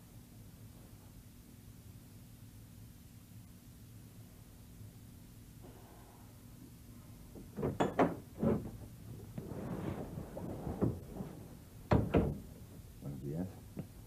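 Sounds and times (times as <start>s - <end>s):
soft rustle: 8.4s - 11.6s
door clunking: 10.7s - 12.8s.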